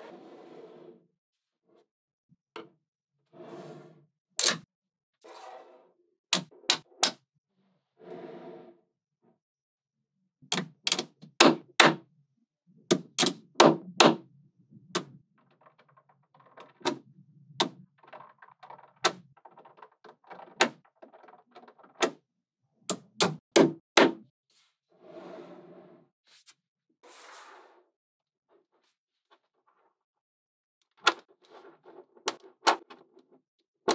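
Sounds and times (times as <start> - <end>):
balls rattling: 14.7 - 22.2.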